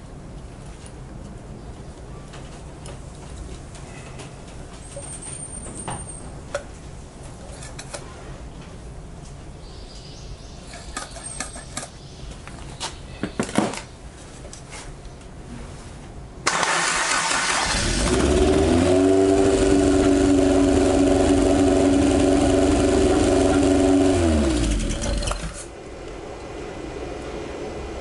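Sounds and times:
car engine starting and running: 16.5 - 25.7.

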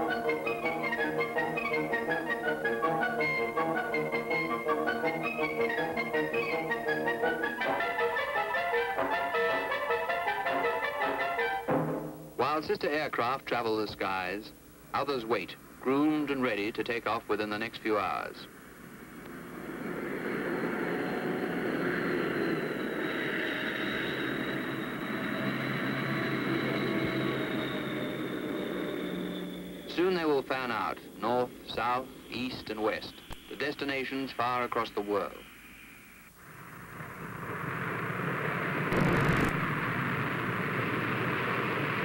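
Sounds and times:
aircraft engines running: 0.0 - 11.3, 18.5 - 33.8, 36.5 - 42.0
thin high whine: 18.6 - 34.1
engine crackle: 36.5 - 42.0.

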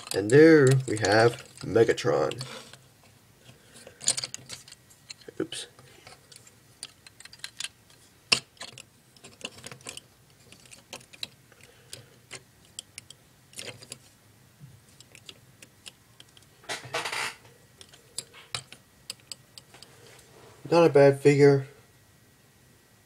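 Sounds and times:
plastic toy pieces clicking: 0.0 - 2.8, 3.9 - 5.3, 6.0 - 7.7, 8.3 - 14.0.

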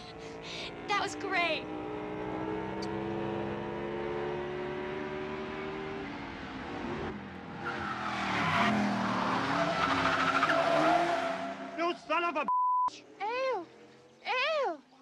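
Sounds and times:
sports car engine revving: 0.3 - 12.1
tires squealing and skidding: 7.5 - 12.2.

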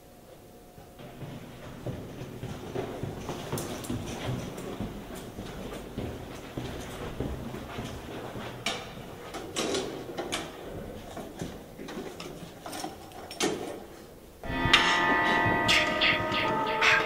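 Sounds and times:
loud music: 14.4 - 17.0.

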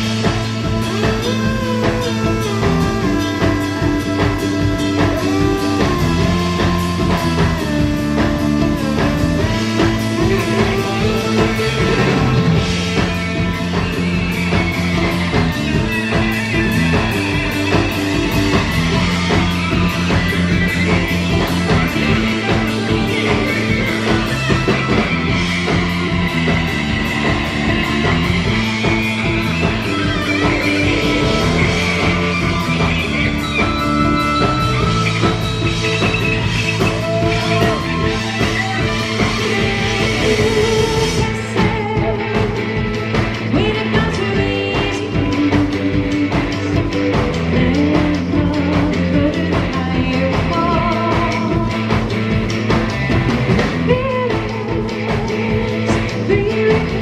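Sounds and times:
wavering lead line: 0.0 - 48.4
live rock band playing: 0.0 - 57.0
repeating bass line: 0.0 - 57.0
steady drum beat: 0.0 - 57.0.

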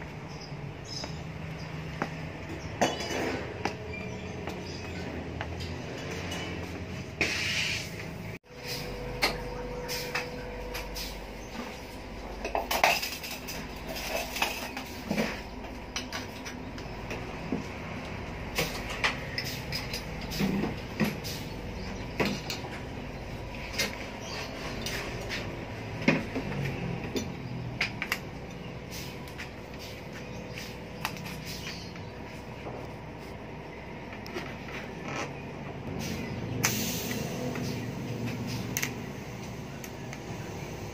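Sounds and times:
steady hum: 6.8 - 26.2.

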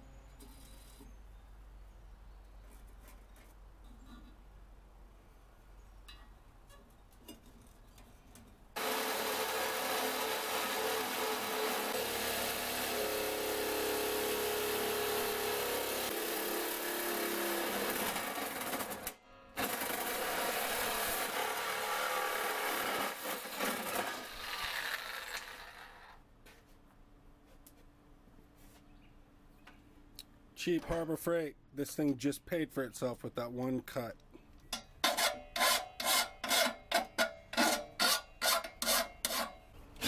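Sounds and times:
reciprocating saw cutting steel: 8.8 - 26.2.

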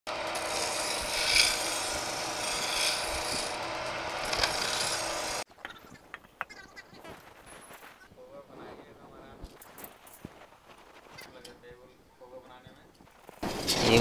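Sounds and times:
chisel cutting wood on lathe: 0.1 - 5.5.

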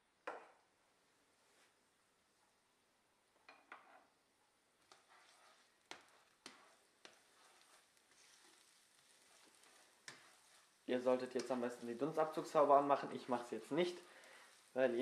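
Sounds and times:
faint sizzle: 1.0 - 15.0
spatula knocking in frying pan: 5.9 - 7.8, 9.3 - 10.6.

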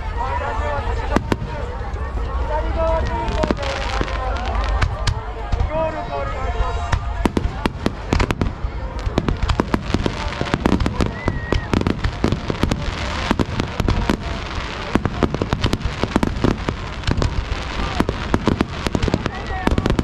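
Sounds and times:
fireworks bangs and crackles: 0.8 - 6.1, 6.8 - 20.0.

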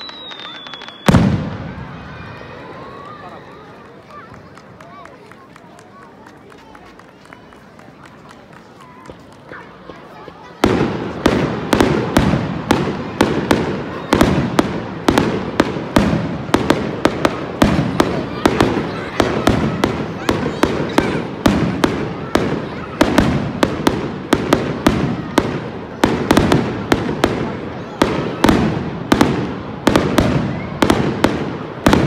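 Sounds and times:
fireworks bursting: 0.0 - 2.6, 9.2 - 32.0.

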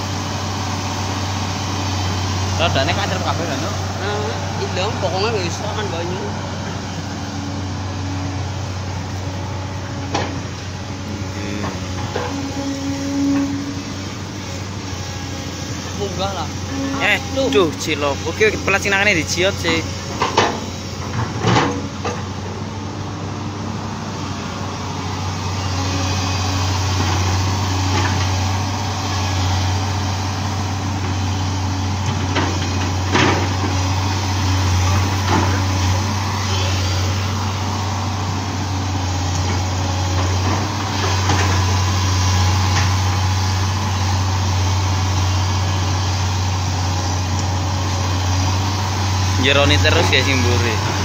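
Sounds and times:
excavator diesel engine droning: 0.0 - 51.0.

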